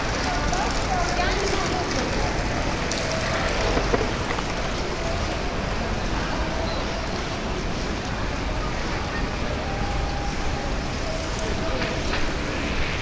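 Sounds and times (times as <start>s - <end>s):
people's voices: 0.0s - 13.0s
traffic noise: 0.0s - 13.0s.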